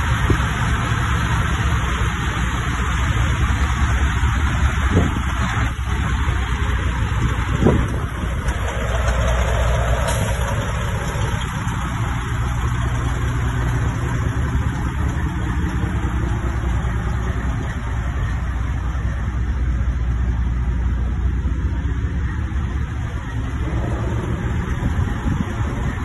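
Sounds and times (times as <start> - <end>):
truck diesel engine idling: 0.0 - 26.0.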